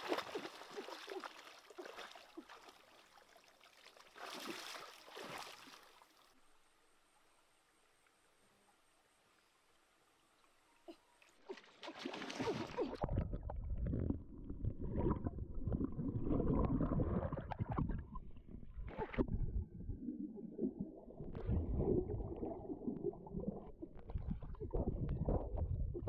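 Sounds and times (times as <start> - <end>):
water splashing: 0.0 - 6.3, 11.4 - 19.3
underwater bubbling and gurgling: 12.7 - 26.0.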